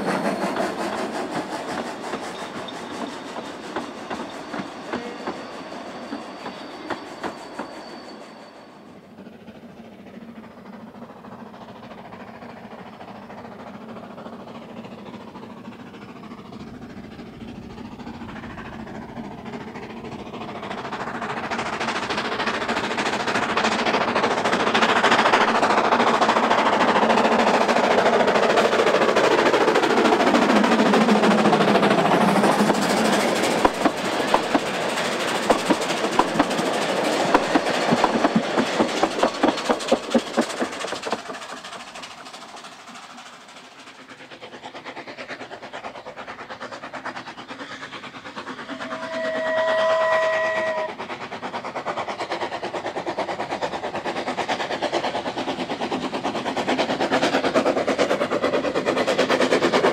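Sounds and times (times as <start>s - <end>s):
steam train passing: 0.0s - 59.9s
wheels clicking over rail joints: 20.6s - 44.5s.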